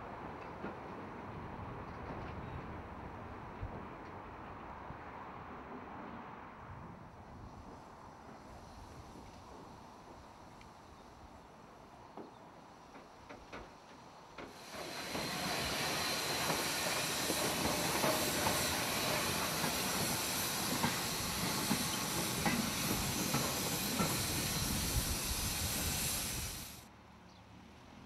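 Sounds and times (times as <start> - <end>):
light clicks of passing train: 0.0 - 28.0
steam locomotive hissing: 7.5 - 26.9.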